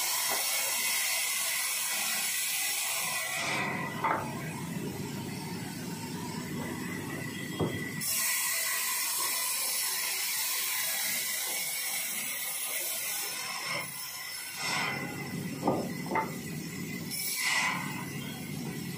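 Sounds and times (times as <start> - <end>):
band saw cutting wood: 8.0 - 18.9.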